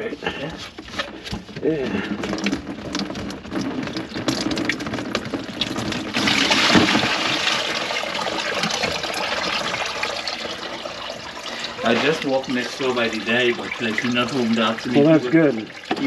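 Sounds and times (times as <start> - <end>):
light knocks and clatter: 0.7 - 7.0
water running into sink: 1.7 - 16.0.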